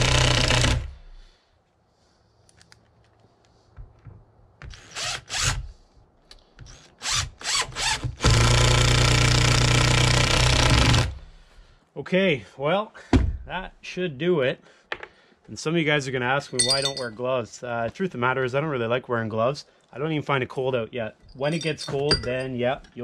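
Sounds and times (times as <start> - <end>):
cordless drill driving screw: 4.7 - 5.7.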